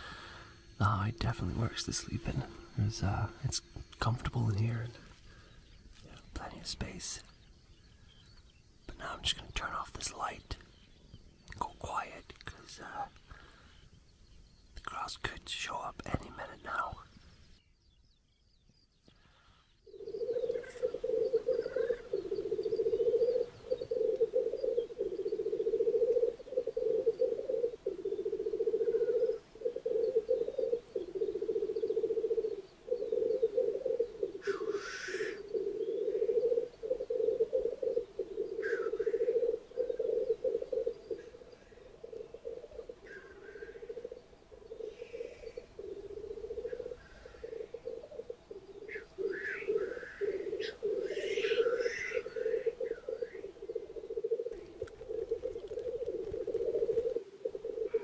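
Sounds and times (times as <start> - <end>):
grouse bubbling cooing chorus: 19.9 - 58.0.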